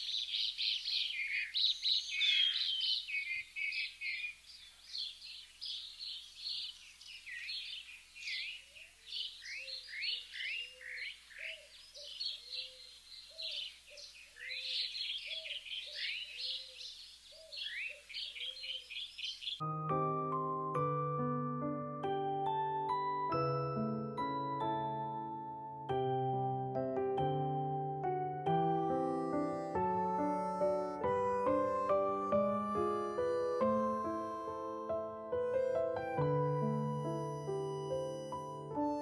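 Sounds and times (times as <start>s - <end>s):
small birds chirping: 0.0s - 19.7s
lower bird call: 28.9s - 39.0s.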